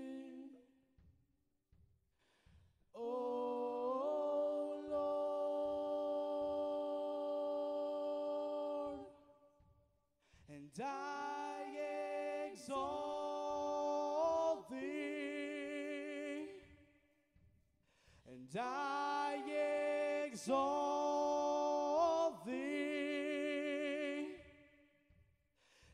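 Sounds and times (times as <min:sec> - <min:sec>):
person singing worship phrases: 0:00.0 - 0:00.6, 0:03.0 - 0:09.4, 0:10.5 - 0:16.8, 0:18.2 - 0:24.8.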